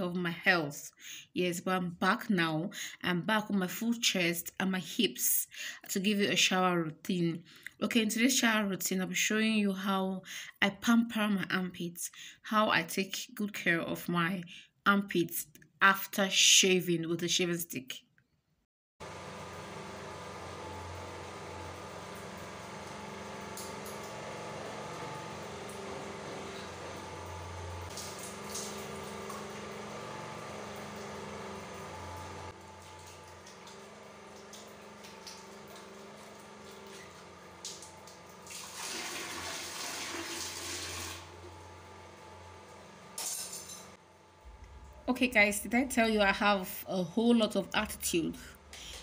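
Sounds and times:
water running: 19.0s - 46.7s
low mechanical hum: 19.0s - 49.0s.

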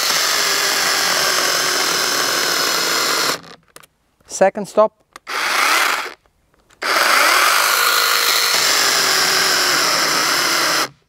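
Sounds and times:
chainsaw cutting log: 0.0s - 3.6s, 5.2s - 6.2s, 6.8s - 11.0s.

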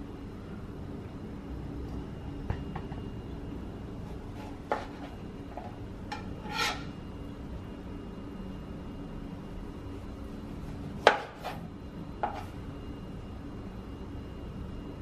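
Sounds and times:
faint steady hum: 0.0s - 15.0s
knife scrape: 4.1s - 7.0s, 11.2s - 12.6s.

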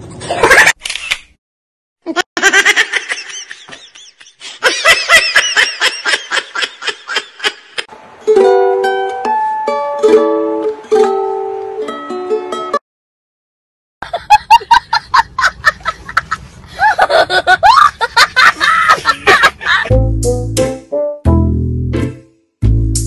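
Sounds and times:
plucked ukulele music: 8.2s - 12.8s.

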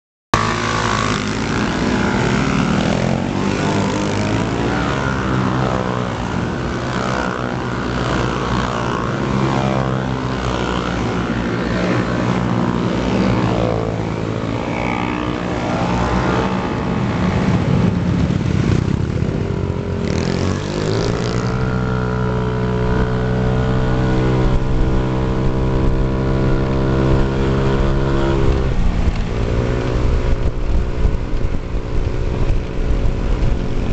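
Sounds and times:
scooter engines revving: 0.4s - 33.9s.

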